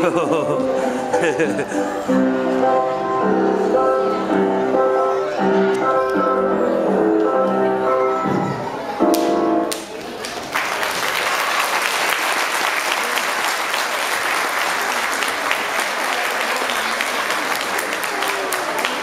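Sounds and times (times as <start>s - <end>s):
music: 0.0s - 9.8s
audience applause: 9.7s - 19.0s.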